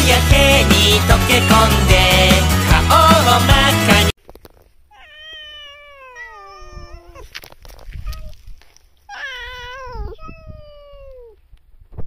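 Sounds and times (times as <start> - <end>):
cat chirp-like call: 4.9 - 7.3, 9.1 - 11.4
cat meowing: 4.9 - 8.5, 9.1 - 11.4.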